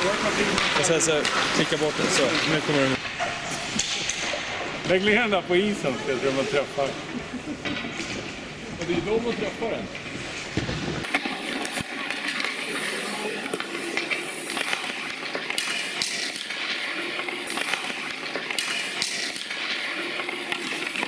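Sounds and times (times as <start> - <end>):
skates scraping on ice: 0.0 - 3.8, 7.9 - 21.0
sticks clacking pucks: 0.0 - 5.1, 7.6 - 21.0.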